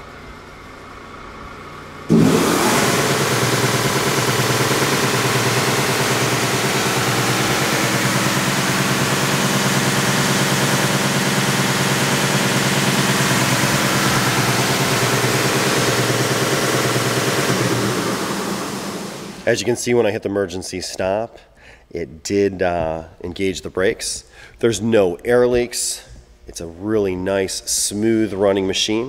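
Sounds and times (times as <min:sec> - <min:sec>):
belt sander whirring: 0:02.1 - 0:19.5.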